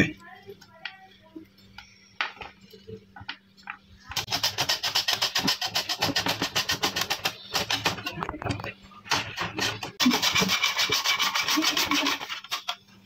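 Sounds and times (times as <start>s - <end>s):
potato rasping on metal slicer: 4.2s - 7.8s, 9.3s - 12.8s.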